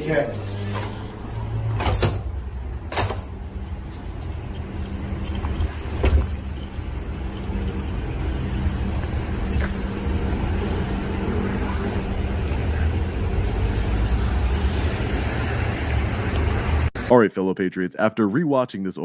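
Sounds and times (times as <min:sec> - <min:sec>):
vehicle engine running: 0:02.4 - 0:16.9.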